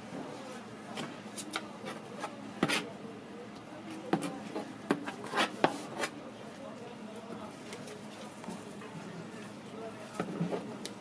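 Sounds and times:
metal spatula scraping and tapping: 0:01.4 - 0:02.9, 0:03.9 - 0:06.2.

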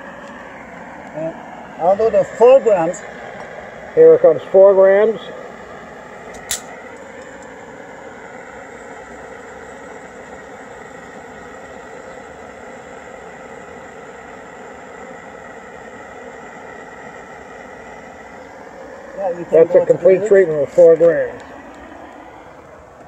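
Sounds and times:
propane torch hissing: 0:00.0 - 0:23.0
sharp click: 0:06.3 - 0:06.7.

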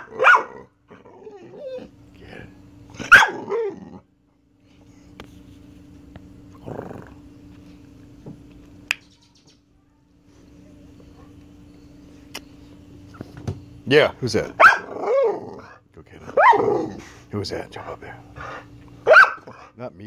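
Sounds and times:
dog barking: 0:00.0 - 0:00.7, 0:03.0 - 0:03.7, 0:14.6 - 0:15.3, 0:16.4 - 0:16.7, 0:19.0 - 0:19.6
dog whining: 0:00.0 - 0:02.0.

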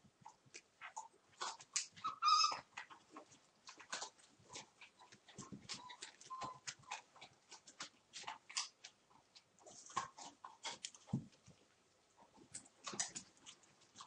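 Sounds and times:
puppies scuffling: 0:00.5 - 0:14.0
puppy squeaks: 0:02.0 - 0:02.7, 0:05.7 - 0:06.7
puppy yelping: 0:02.0 - 0:02.7, 0:05.7 - 0:06.7.

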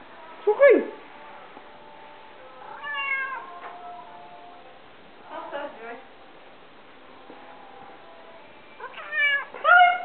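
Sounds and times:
cat meowing: 0:02.7 - 0:03.6, 0:08.8 - 0:10.0.

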